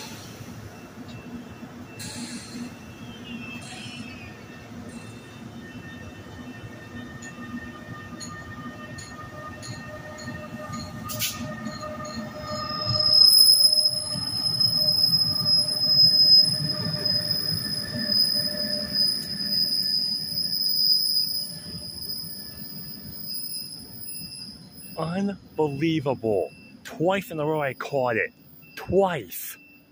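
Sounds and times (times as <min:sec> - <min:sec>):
train wheels squealing: 0:00.0 - 0:26.8, 0:27.4 - 0:29.9
train rumble: 0:04.6 - 0:27.2.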